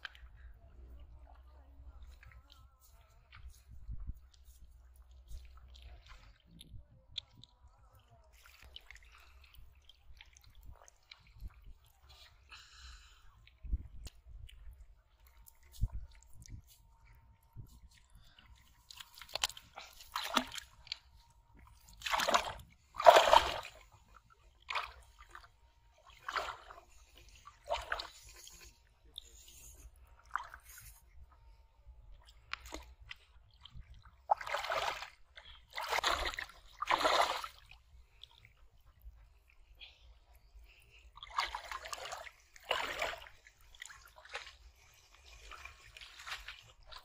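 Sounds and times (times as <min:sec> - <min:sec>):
wading steps splashing water: 0:17.7 - 0:28.7, 0:32.2 - 0:39.0, 0:41.2 - 0:47.0.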